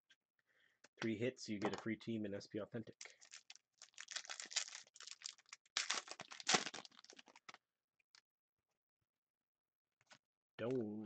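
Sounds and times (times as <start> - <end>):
plastic wrapper crinkling and tearing: 3.0 - 7.6.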